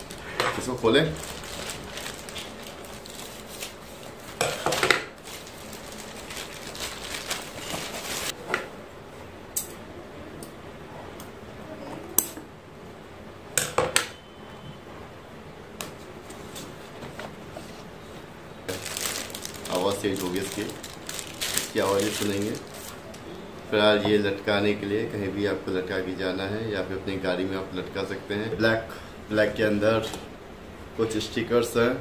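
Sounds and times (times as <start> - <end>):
plastic mailer rustling: 0.0 - 8.4, 18.7 - 23.1.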